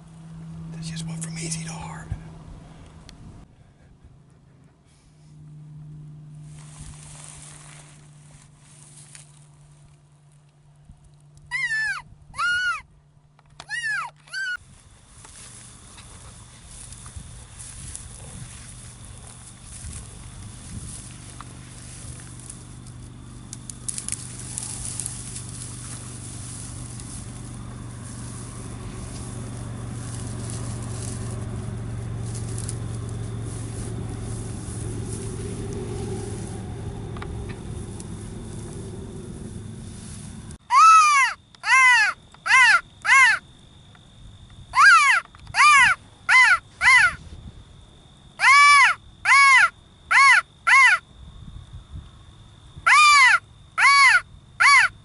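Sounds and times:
constant low hum: 0:00.0 - 0:55.0
wind rumbling on microphone: 0:01.8 - 0:04.2, 0:14.6 - 0:40.6, 0:47.1 - 0:47.9, 0:51.2 - 0:52.9
dry grass rustling: 0:05.9 - 0:11.6, 0:14.3 - 0:43.3.

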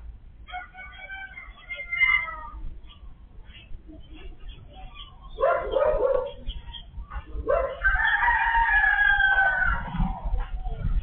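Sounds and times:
rooster crowing: 0:00.5 - 0:02.4, 0:07.7 - 0:09.9.

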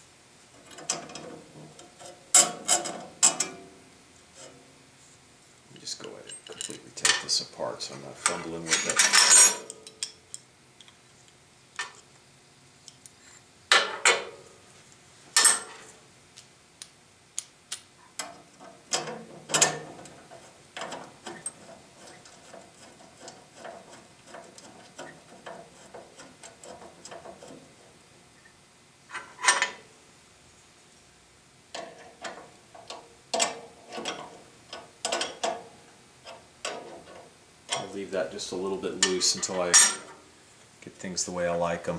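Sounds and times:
metal parts clinking and clanking: 0:05.8 - 0:07.4, 0:08.2 - 0:10.2, 0:15.4 - 0:15.8, 0:18.2 - 0:20.1, 0:29.1 - 0:29.8, 0:39.0 - 0:40.2.

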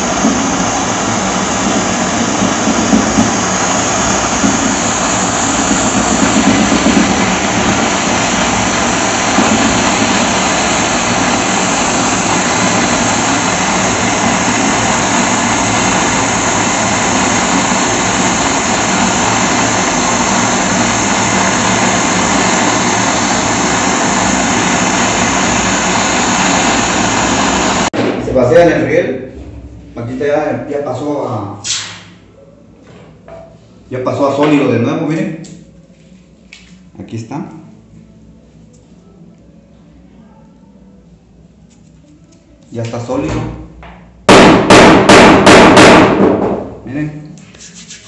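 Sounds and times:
gas torch flame hissing: 0:00.0 - 0:28.0, 0:31.6 - 0:32.2.

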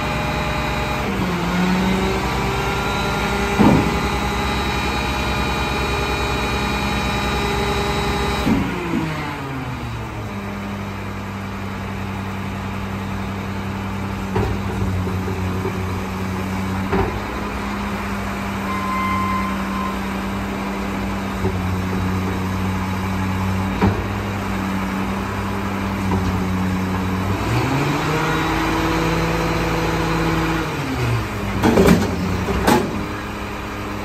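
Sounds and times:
garbage truck diesel engine: 0:00.0 - 0:34.0
metal bang from dumpster: 0:03.5 - 0:04.4.

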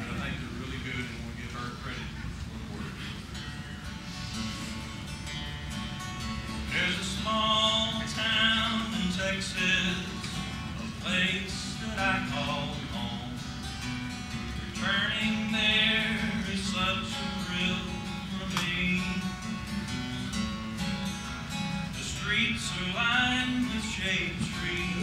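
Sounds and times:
acoustic guitar: 0:00.0 - 0:25.0
man singing: 0:06.6 - 0:13.6, 0:14.5 - 0:19.8, 0:21.9 - 0:25.0.

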